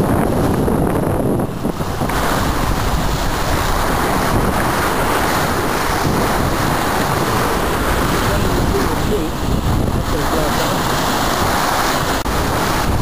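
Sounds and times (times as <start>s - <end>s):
sea splashing past hull: 0.0s - 13.0s
wind buffeting microphone: 0.0s - 13.0s.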